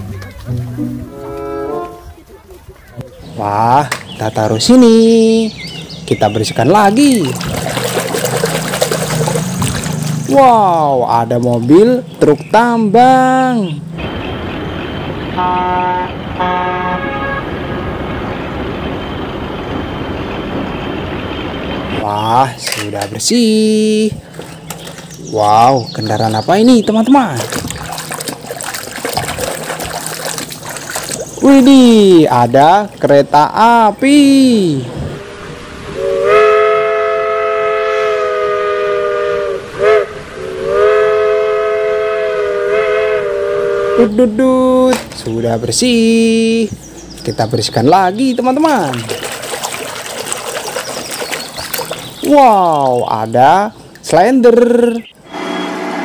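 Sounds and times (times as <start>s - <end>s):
truck horn honking: 0.6s - 2.2s, 15.3s - 18.0s, 35.1s - 44.2s, 55.2s - 56.0s
steam locomotive whistle: 15.4s - 17.5s, 35.1s - 44.2s, 55.2s - 56.0s.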